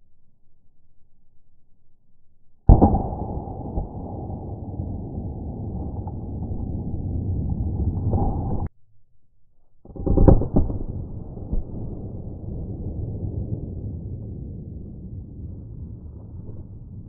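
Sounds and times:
slowed pistol shot rumble: 2.7s - 8.7s, 9.8s - 17.0s.

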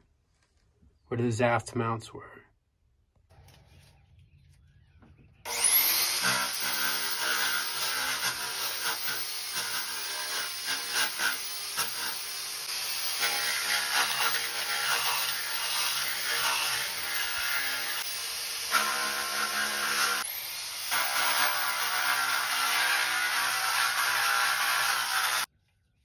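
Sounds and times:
disc sander abrading fiberglass: 5.5s - 25.5s.

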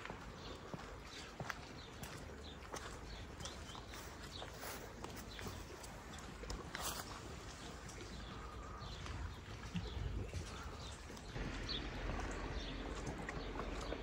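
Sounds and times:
footsteps on path: 0.0s - 14.0s
low outdoor rumble: 8.3s - 14.0s.

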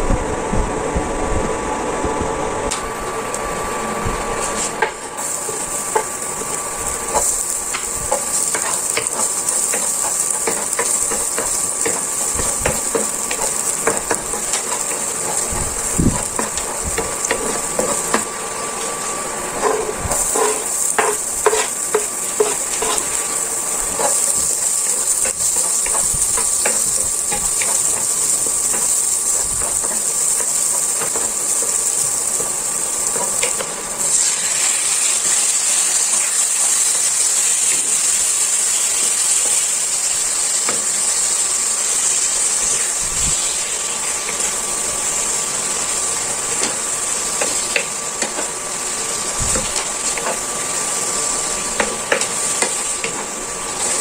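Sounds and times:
garlic and onion sizzling in oil: 3.0s - 54.0s
wooden spatula scraping and tapping: 7.1s - 33.8s.

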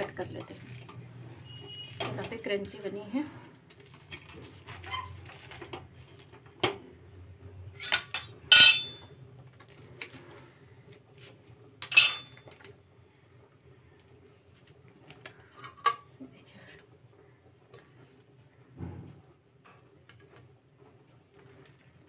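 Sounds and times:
knife clinking on griddle pan: 7.8s - 9.0s, 11.8s - 12.4s.

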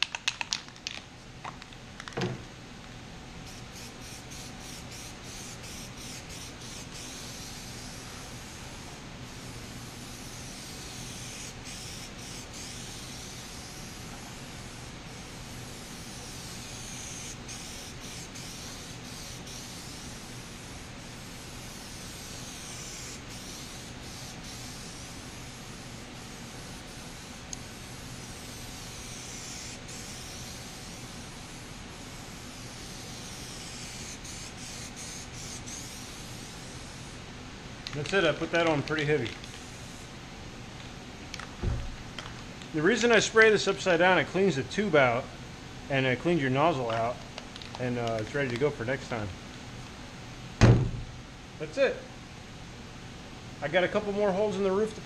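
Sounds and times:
aerosol spray can hissing: 3.4s - 37.2s, 38.0s - 40.1s.

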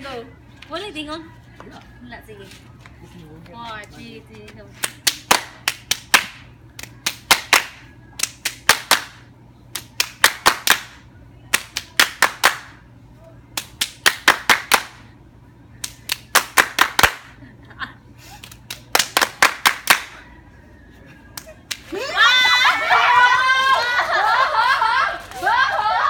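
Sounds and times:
hand claps and slaps: 4.8s - 12.8s, 13.6s - 15.0s, 15.8s - 17.4s, 18.4s - 20.2s, 21.3s - 21.9s.

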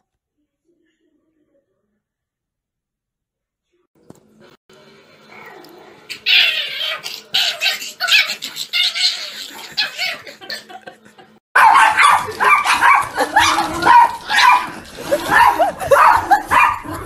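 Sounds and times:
small dog yipping and barking: 11.6s - 14.7s.

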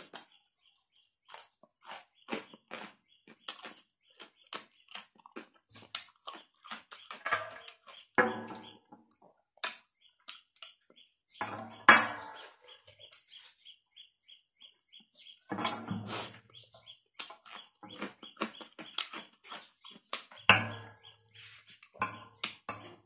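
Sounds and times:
wet chewing and lip smacking: 0.0s - 8.2s, 9.1s - 10.9s, 17.1s - 20.5s
crunchy cucumber bites: 1.2s - 8.2s, 17.2s - 21.0s.

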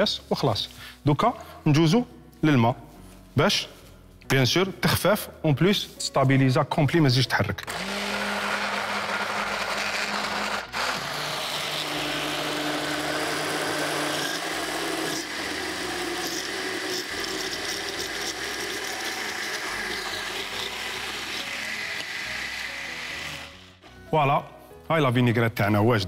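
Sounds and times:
blender motor running: 7.7s - 23.9s.

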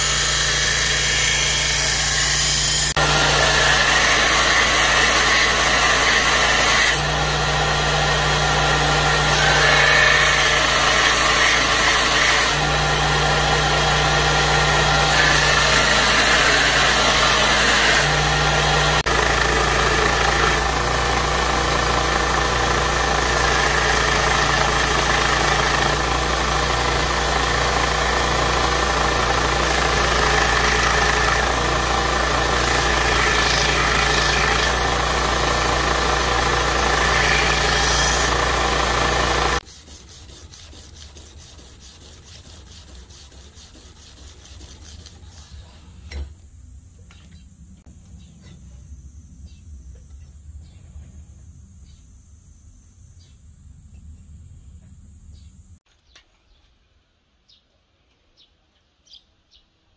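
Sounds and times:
belt grinder grinding steel: 0.0s - 45.2s
abrasive paper rubbing blade: 29.2s - 45.9s.

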